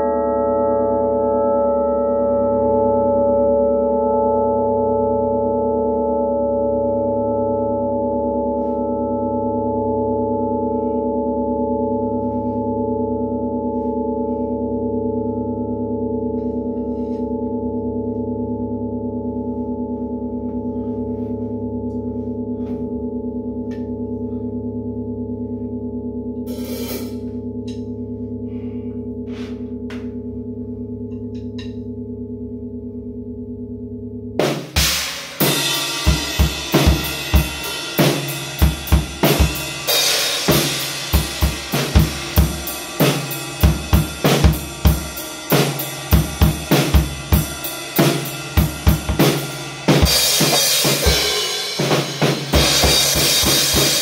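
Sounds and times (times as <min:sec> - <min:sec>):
large gong ringing: 0:00.0 - 0:54.0
drum kit playing: 0:26.5 - 0:27.3, 0:34.4 - 0:54.0.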